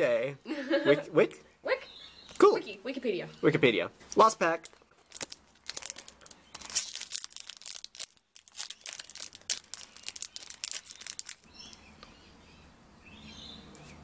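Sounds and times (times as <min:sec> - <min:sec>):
foil wrapper crinkling and tearing: 0:04.6 - 0:11.8.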